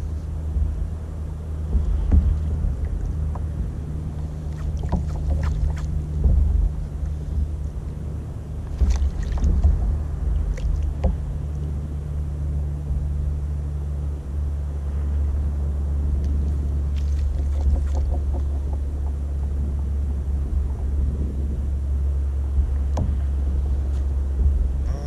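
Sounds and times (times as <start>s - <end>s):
wind and water rumble: 0.0s - 25.0s
light clicks and knocks: 8.6s - 11.7s, 16.2s - 19.9s, 22.7s - 24.7s.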